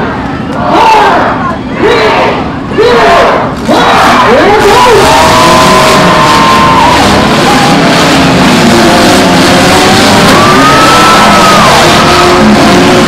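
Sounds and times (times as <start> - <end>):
car engines revving: 0.0 - 13.0
crowd noise: 0.0 - 13.0.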